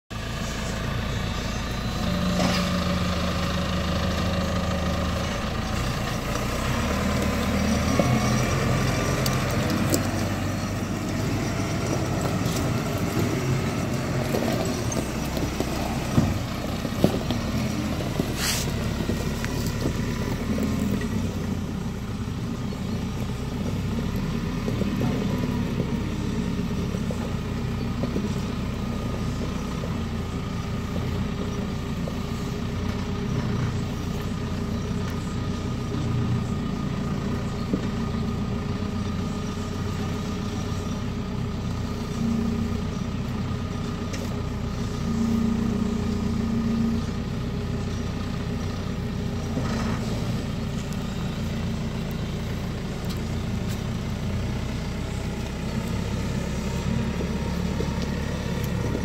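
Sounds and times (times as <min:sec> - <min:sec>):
diesel engine running: 0:00.1 - 0:59.0.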